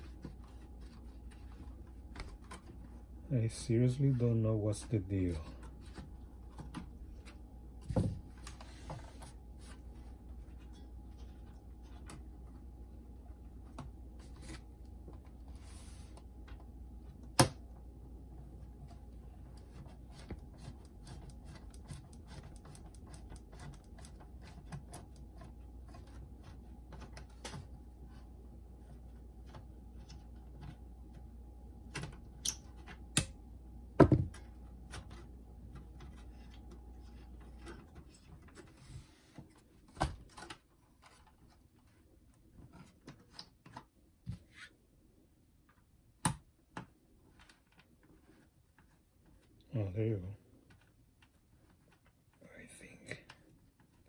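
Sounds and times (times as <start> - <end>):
steady low hum: 0.0 - 43.1.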